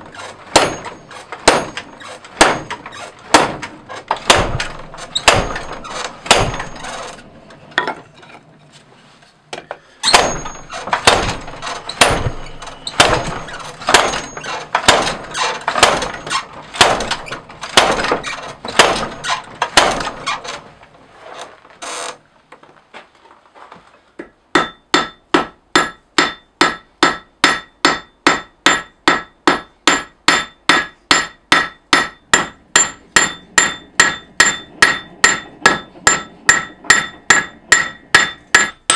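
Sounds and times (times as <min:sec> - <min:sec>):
heavy blows on a top tool: 0:00.0 - 0:07.3
hammer ringing on anvil: 0:00.6 - 0:02.7, 0:10.1 - 0:10.7, 0:24.6 - 0:38.9.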